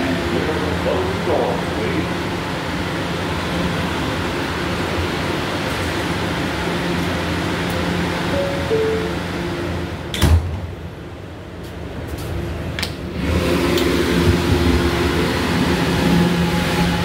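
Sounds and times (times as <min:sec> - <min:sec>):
train motors humming: 0:00.0 - 0:17.0
door-closing chime: 0:08.4 - 0:09.3
train doors shutting with a thud: 0:10.0 - 0:10.9.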